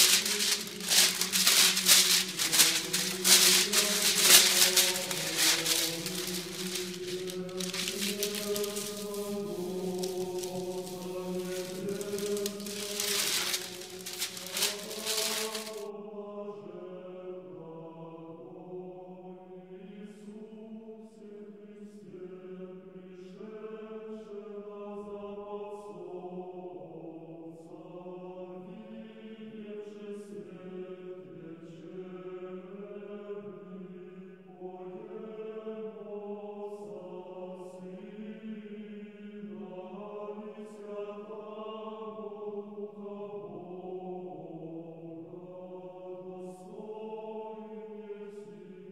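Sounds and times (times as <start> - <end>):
loud rustle: 0.0 - 15.8.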